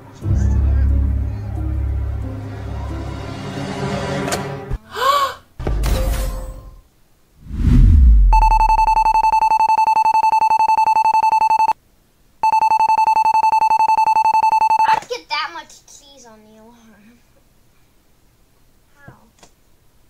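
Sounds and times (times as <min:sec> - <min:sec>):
deep boom: 0:07.4 - 0:08.8
electronic ringing alarm: 0:08.2 - 0:11.8, 0:12.4 - 0:14.9.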